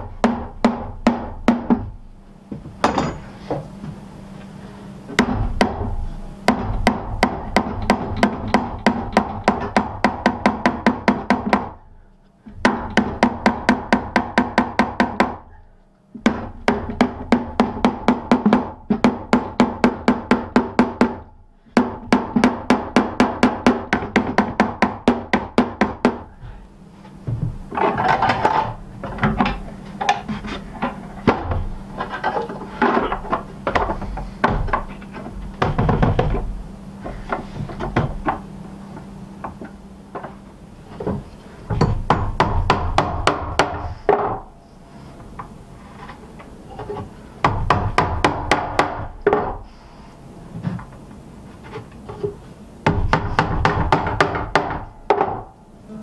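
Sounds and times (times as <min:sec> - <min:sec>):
iron hardware knocks and handling: 0:01.1 - 0:04.0, 0:27.2 - 0:38.5, 0:41.0 - 0:44.5
hammer tapping nails into wood: 0:06.5 - 0:11.8, 0:12.5 - 0:15.4, 0:21.8 - 0:26.3, 0:41.0 - 0:44.4, 0:47.4 - 0:49.6, 0:52.8 - 0:55.5.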